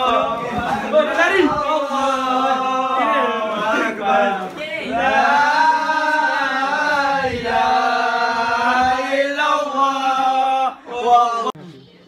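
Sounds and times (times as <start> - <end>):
men chanting: 0.0 - 11.6.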